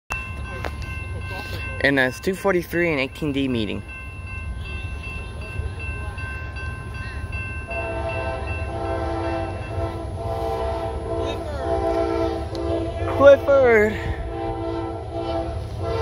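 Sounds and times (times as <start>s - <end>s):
locomotive air horn blasts: 7.7s - 16.0s.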